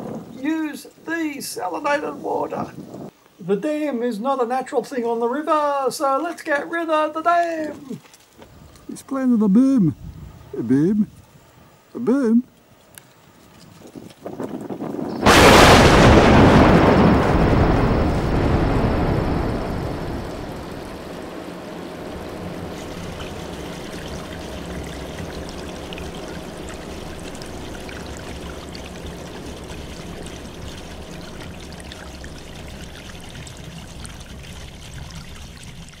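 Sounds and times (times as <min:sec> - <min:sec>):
rushing water: 0:12.1 - 0:36.0
explosion rumbling: 0:15.2 - 0:23.6.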